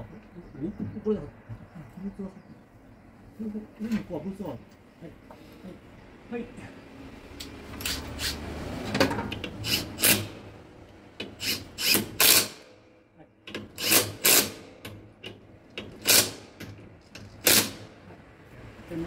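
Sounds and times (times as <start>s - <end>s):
cordless drill bursts: 9.6s - 10.4s, 11.4s - 12.6s, 13.8s - 14.6s.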